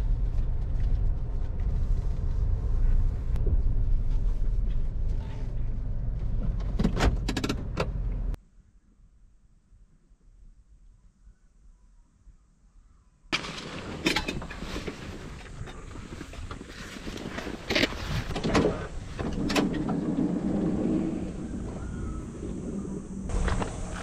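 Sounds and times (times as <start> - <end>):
backpack handling noise: 13.4 - 19.5.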